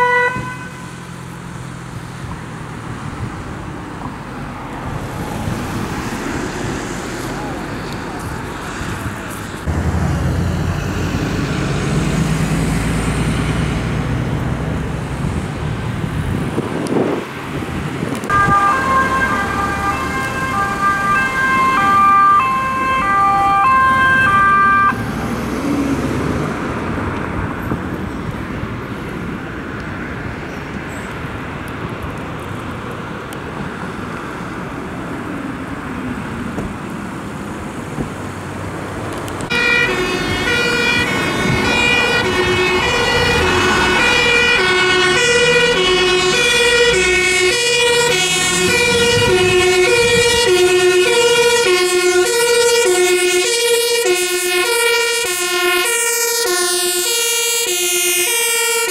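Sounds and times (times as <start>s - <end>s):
two-tone siren: 0.0s - 1.1s, 18.2s - 25.2s, 39.5s - 58.9s
traffic noise: 0.0s - 58.9s
vehicles driving past: 0.0s - 58.9s.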